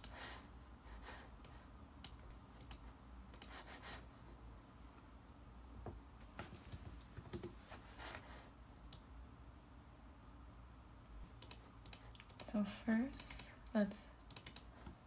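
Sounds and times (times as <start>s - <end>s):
low room hum: 0.0s - 15.0s
mouse and keyboard clicks: 11.3s - 13.6s, 14.3s - 15.0s.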